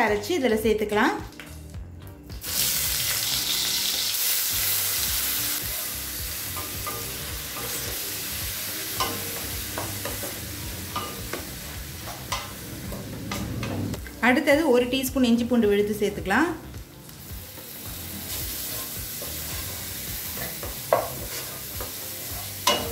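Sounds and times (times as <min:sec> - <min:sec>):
onion paste sizzling in hot oil: 0:02.4 - 0:13.9, 0:16.6 - 0:22.9
spatula scraping and tapping pan: 0:11.0 - 0:14.0, 0:18.8 - 0:22.9.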